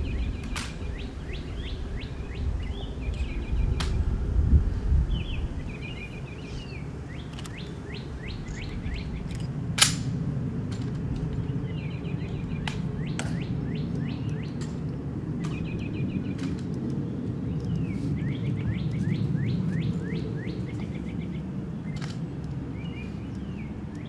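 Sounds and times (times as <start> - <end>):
birds chirping and trilling: 0.0 - 10.1, 10.8 - 24.0.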